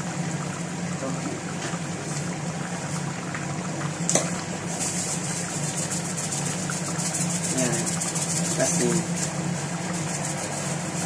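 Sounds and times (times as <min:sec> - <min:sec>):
stew simmering: 0:00.0 - 0:11.0
salt shaker rattling: 0:04.8 - 0:11.0.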